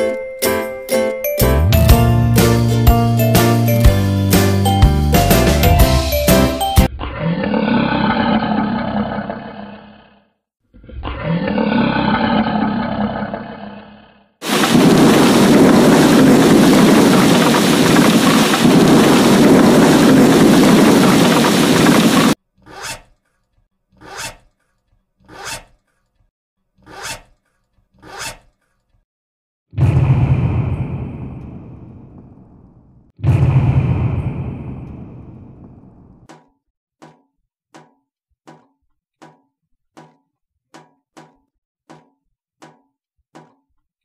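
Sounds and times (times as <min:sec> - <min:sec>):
heavy rain: 0:14.4 - 0:22.4.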